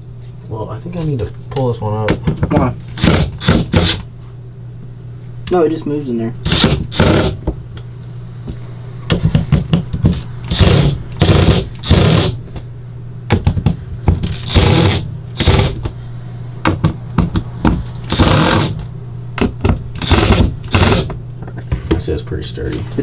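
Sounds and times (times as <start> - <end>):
impact driver driving screws: 6.5 - 7.4, 10.5 - 12.4, 14.2 - 15.8, 18.1 - 18.8, 20.0 - 21.1.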